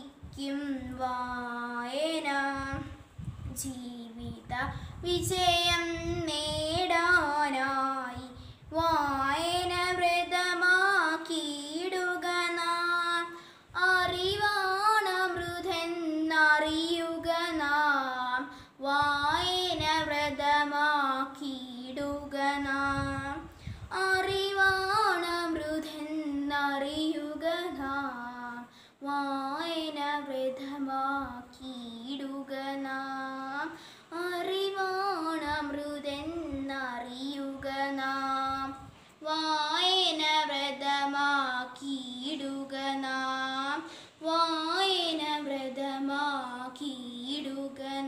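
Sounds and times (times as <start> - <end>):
girl singing unaccompanied: 0.0 - 48.0.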